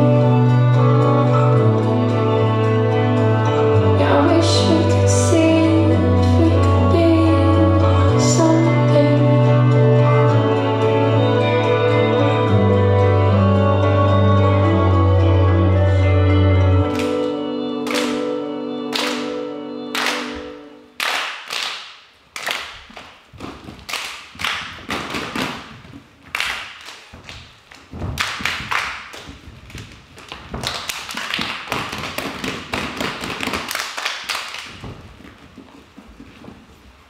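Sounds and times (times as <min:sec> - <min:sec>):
held musical notes: 0:00.0 - 0:21.0.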